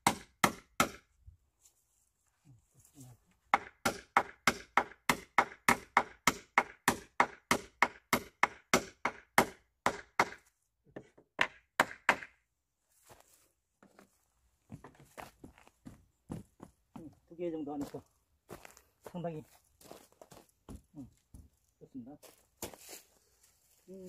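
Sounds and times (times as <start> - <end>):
hammer striking nail into wood: 0.0 - 1.1, 3.5 - 10.4, 11.0 - 12.4.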